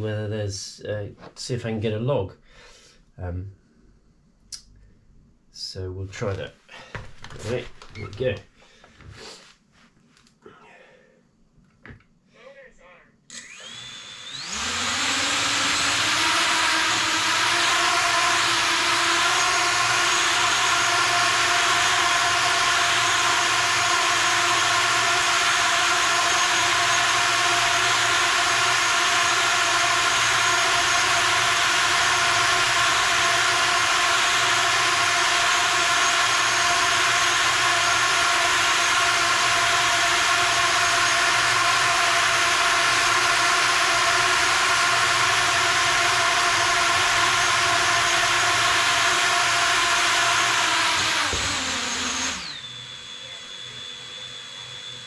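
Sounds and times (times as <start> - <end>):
quadcopter propellers whirring: 13.4 - 55.0.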